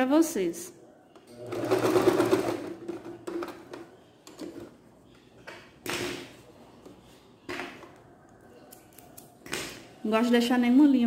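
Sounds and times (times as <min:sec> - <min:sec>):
sewing machine stitching: 0:01.4 - 0:03.6.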